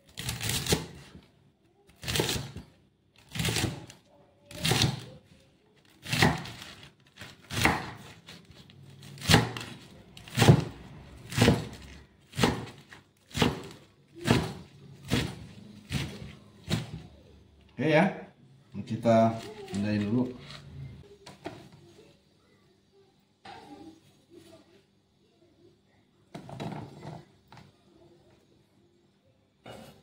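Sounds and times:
cleaver chopping on wooden board: 0:07.5 - 0:08.1, 0:09.2 - 0:09.7, 0:10.3 - 0:17.0.

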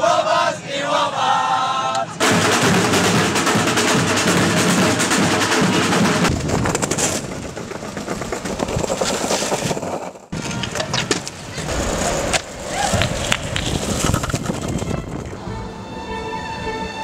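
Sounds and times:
snare drum band playing: 0:02.2 - 0:06.4
longboard wheels rolling on pavement: 0:05.2 - 0:15.7.

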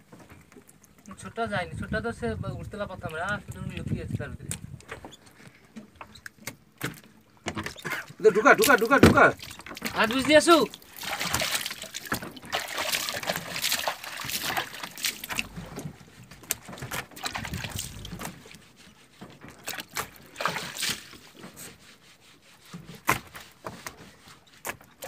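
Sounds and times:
water splashes: 0:06.1 - 0:25.0.

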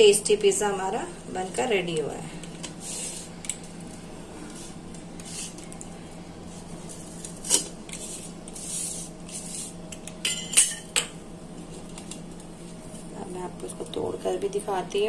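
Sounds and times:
pizza cutter scraping crust: 0:06.9 - 0:09.8.

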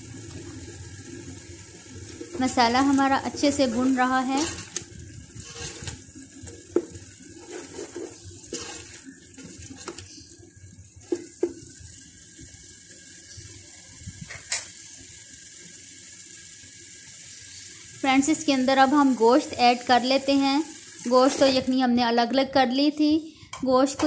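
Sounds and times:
food sizzling in oil: 0:00.0 - 0:24.0
spoon scraping a metal pot: 0:02.4 - 0:04.8, 0:05.4 - 0:06.0, 0:07.4 - 0:10.2.

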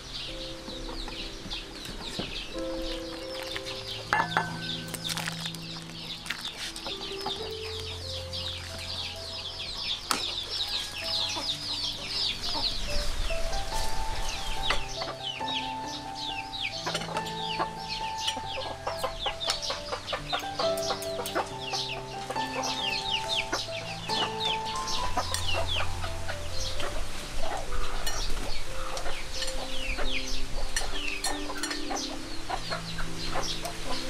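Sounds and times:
chickens clucking: 0:00.0 - 0:34.0
high falling chirps: 0:00.0 - 0:34.0
slow background music: 0:00.0 - 0:34.0.

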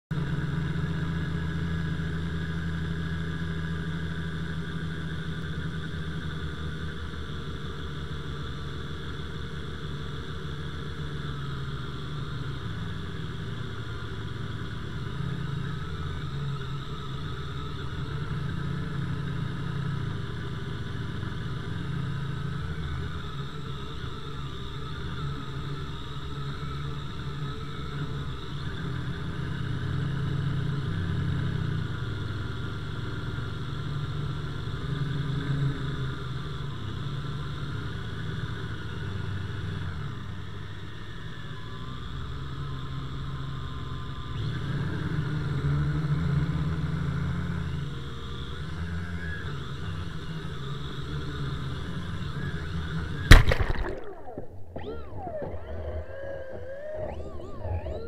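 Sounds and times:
drone crashing into water: 0:53.3 - 0:54.8.

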